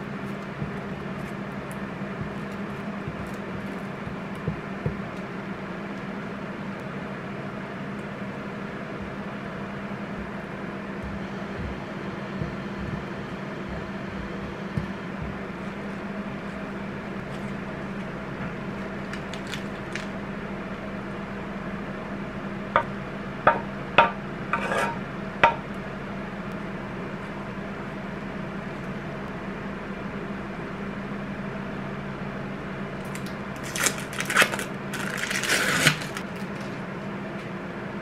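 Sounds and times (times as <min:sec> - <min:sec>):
kitchen appliance hum: 0:00.0 - 0:38.0
food handling: 0:11.0 - 0:20.3.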